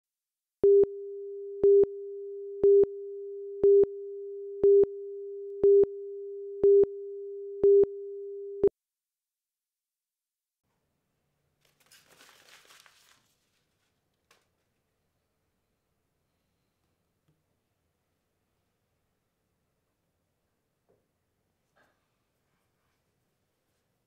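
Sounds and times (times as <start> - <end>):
countdown beeps: 0.6 - 8.7.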